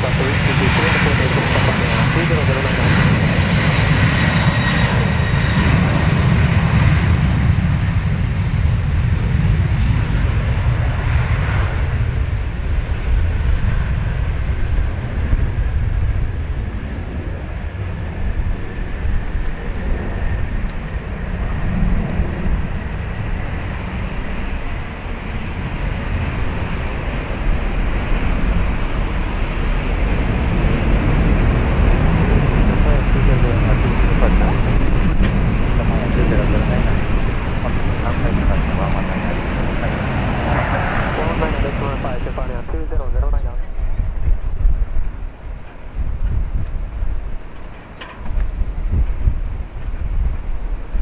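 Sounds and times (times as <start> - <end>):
deep jet engine rumble: 0.0 - 51.0
jet fan whine: 13.1 - 51.0.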